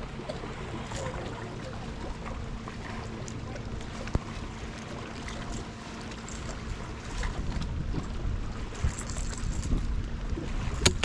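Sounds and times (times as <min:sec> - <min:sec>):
steady low rumble: 0:00.0 - 0:11.0
water lapping against boat hull: 0:00.0 - 0:11.0
wind buffeting microphone: 0:06.6 - 0:11.0.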